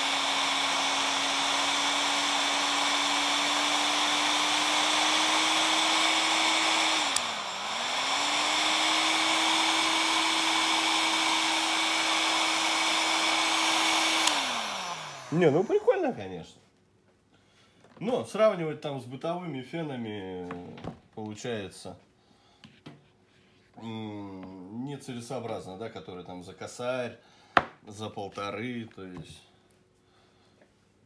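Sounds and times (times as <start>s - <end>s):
heat gun fan whine: 0.0s - 16.1s
heat gun click: 7.0s - 7.4s, 14.0s - 15.2s.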